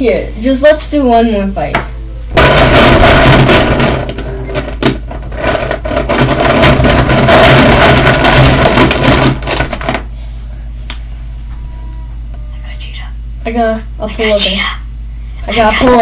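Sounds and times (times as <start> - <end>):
plastic toys clattering: 2.4 - 10.0.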